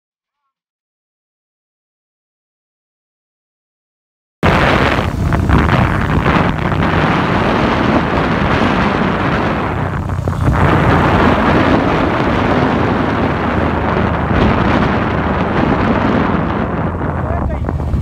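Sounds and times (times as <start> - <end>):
motorcycle engine hum: 4.4 - 18.0
wind rushing over microphone: 4.4 - 18.0.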